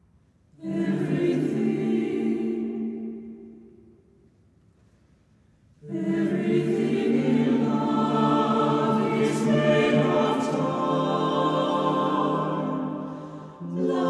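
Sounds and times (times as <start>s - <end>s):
choir singing unaccompanied: 0.6s - 3.9s, 5.8s - 14.0s.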